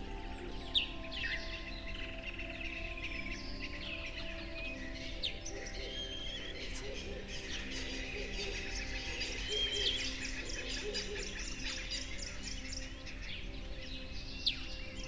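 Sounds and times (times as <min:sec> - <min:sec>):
soft low background tones: 0:00.0 - 0:15.0
songbirds chirping: 0:00.0 - 0:15.0.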